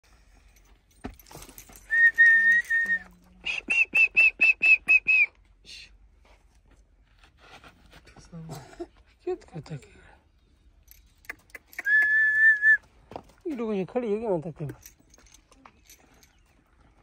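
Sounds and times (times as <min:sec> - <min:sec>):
person whistling: 0:01.9 - 0:05.4, 0:11.8 - 0:12.8.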